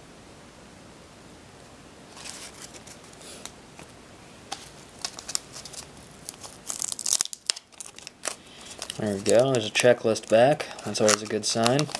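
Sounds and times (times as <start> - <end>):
paper rustle: 2.1 - 3.5, 4.5 - 11.9
cards clicking and snapping: 4.5 - 11.9.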